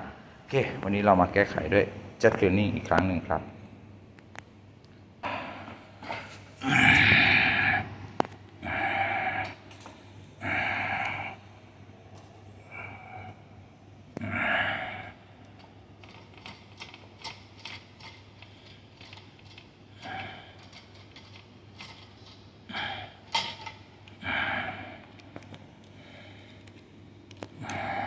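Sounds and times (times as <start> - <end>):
metallic clicks and clatter: 15.6 - 22.4.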